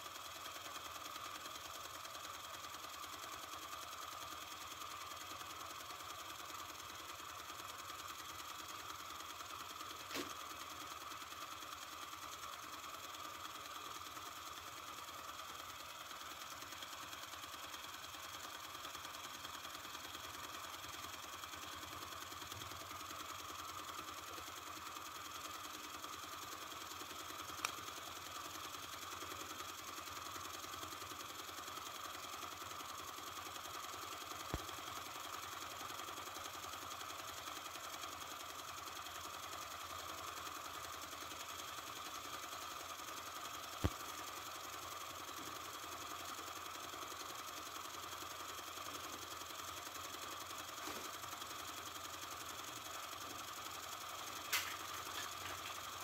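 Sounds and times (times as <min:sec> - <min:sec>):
toy steam engine ticking: 0:00.0 - 0:56.0.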